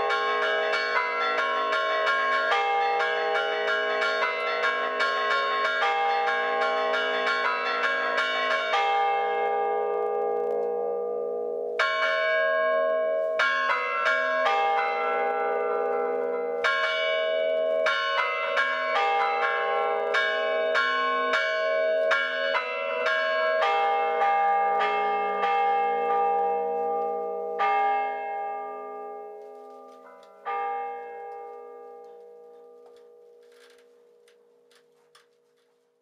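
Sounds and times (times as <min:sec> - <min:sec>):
church bells chiming: 0:00.0 - 0:34.8.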